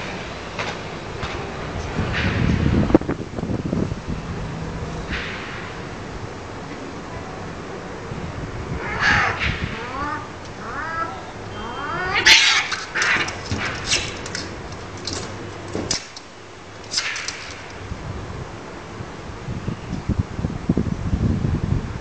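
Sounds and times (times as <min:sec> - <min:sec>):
cat screeching: 0:08.8 - 0:13.4
cats yowling: 0:08.8 - 0:13.4
cats hissing and spitting: 0:12.1 - 0:14.5.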